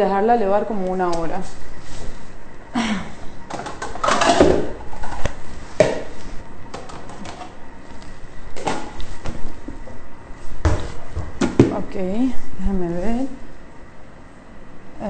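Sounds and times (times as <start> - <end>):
bowls knocking and clattering: 3.5 - 6.1.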